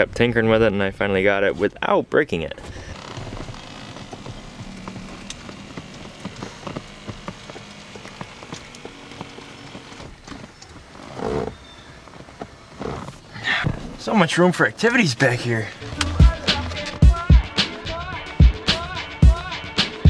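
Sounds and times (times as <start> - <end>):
seat and headrest clicks and knocks: 2.9 - 14.0.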